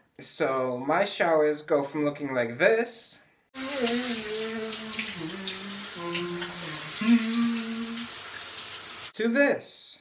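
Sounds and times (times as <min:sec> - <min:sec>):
man singing held notes: 0:03.6 - 0:08.1
shower water spraying: 0:03.6 - 0:09.2.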